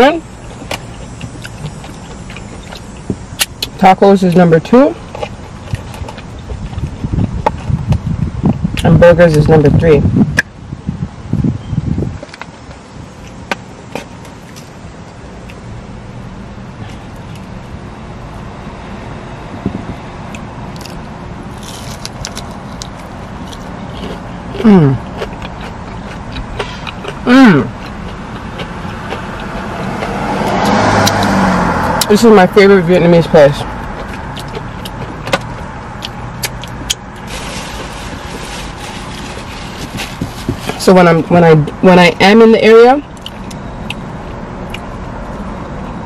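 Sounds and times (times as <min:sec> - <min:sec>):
car engine idling: 0:00.0 - 0:09.4
car interior hum: 0:00.0 - 0:46.0
teeth crunching fried food: 0:00.4 - 0:08.9, 0:20.3 - 0:32.0, 0:33.6 - 0:40.8, 0:43.1 - 0:44.0.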